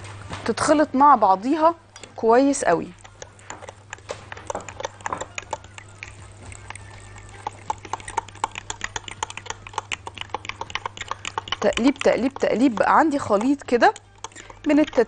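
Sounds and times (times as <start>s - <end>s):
spoon tapping against glass jug: 3.2s - 15.0s.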